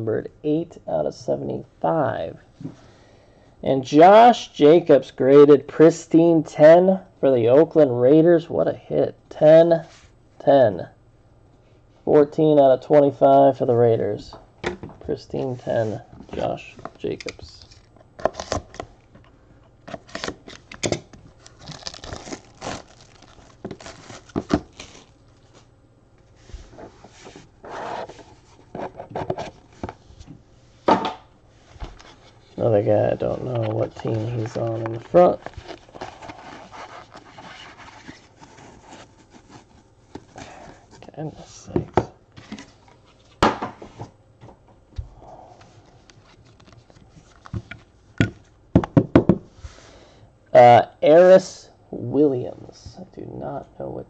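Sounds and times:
shrink wrap tearing and crinkling: 0:19.9 - 0:25.6
knife slitting shrink wrap: 0:21.6 - 0:25.1.

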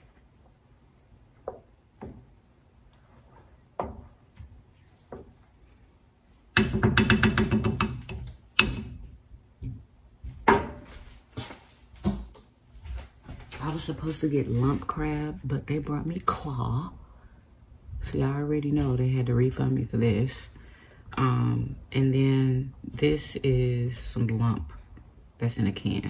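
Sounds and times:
wooden spoon knocking on pot: 0:01.3 - 0:02.4, 0:03.6 - 0:05.4, 0:06.5 - 0:10.9.

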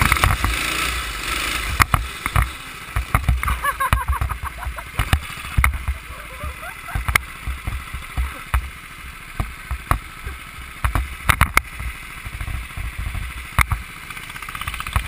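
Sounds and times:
go-kart engine rumble: 0:00.0 - 0:15.0
sharp knocks and clicks: 0:01.7 - 0:06.0, 0:10.8 - 0:13.9, 0:14.6 - 0:15.0.

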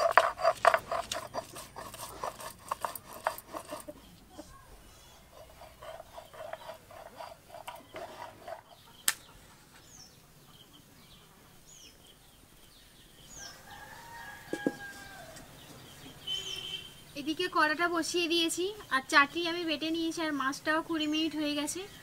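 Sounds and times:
stone grinding on stone slab: 0:00.0 - 0:04.0, 0:05.2 - 0:08.9
small bird chirping: 0:03.2 - 0:13.7, 0:15.6 - 0:17.2
rooster crowing: 0:13.4 - 0:15.5.

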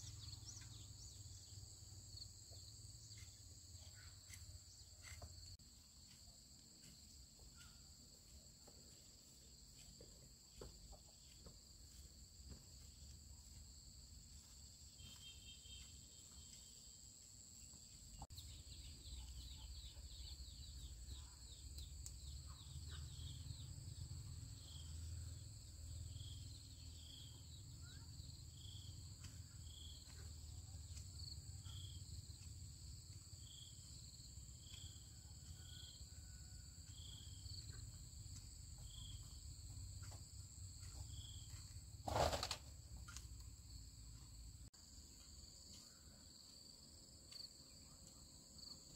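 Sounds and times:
insects droning: 0:00.0 - 0:48.9.

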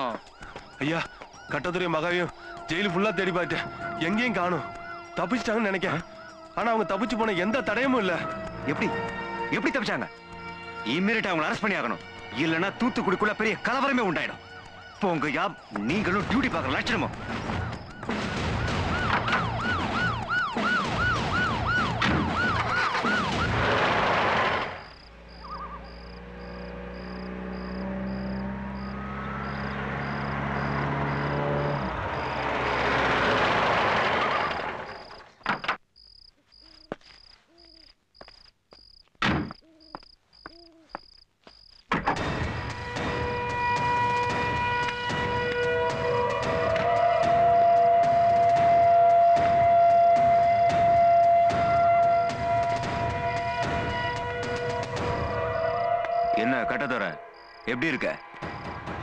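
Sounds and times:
police siren wailing: 0:00.0 - 0:35.1, 0:42.5 - 0:59.0
background music: 0:01.7 - 0:23.3
car engine passing: 0:23.7 - 0:35.2
sharp knocks: 0:41.9 - 0:55.4, 0:58.4 - 0:59.0.

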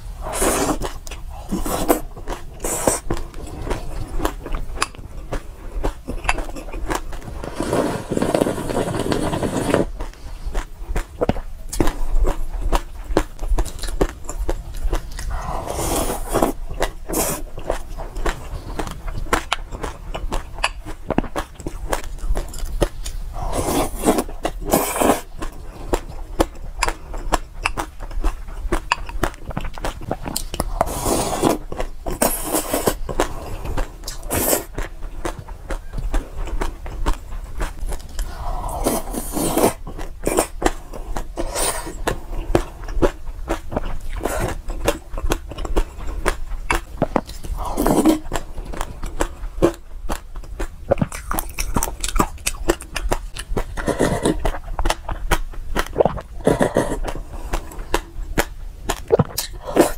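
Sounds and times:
chewing seeds with crunches: 0:08.7 - 0:59.9.

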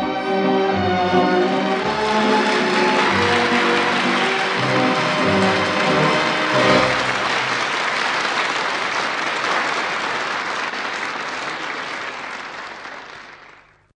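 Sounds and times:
music accompaniment: 0:00.0 - 0:08.1
audience applauding: 0:00.6 - 0:13.9.

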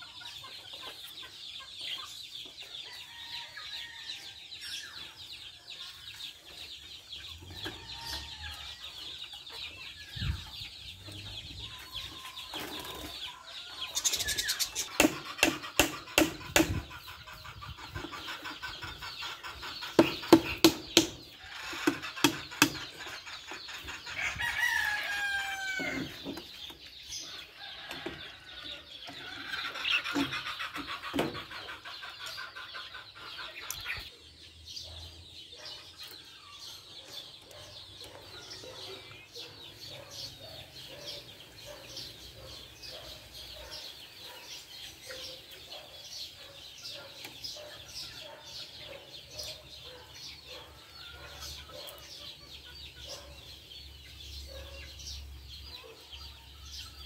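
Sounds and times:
loud bird calls: 0:00.0 - 0:57.0
budgerigars chirping: 0:08.8 - 0:24.3.

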